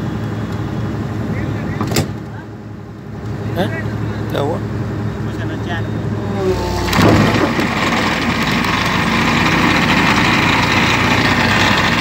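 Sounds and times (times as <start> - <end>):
excavator engine: 2.5 - 12.0
vibratory pile hammer: 6.6 - 12.0.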